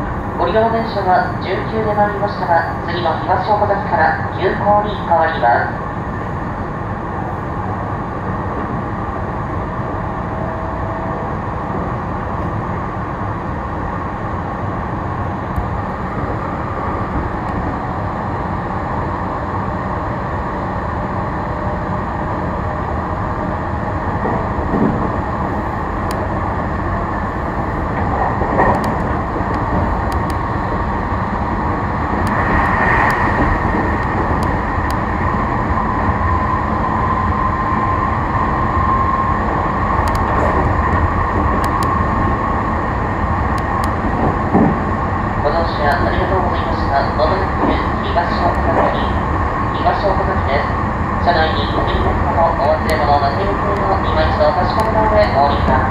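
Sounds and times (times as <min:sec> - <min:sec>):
train wheels and motors rumbling: 0:00.0 - 0:55.9.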